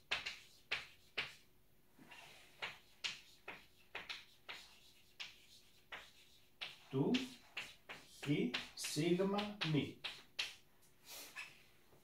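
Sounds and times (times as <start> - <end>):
chalk tapping and scratching: 0.0 - 1.5, 2.1 - 10.7.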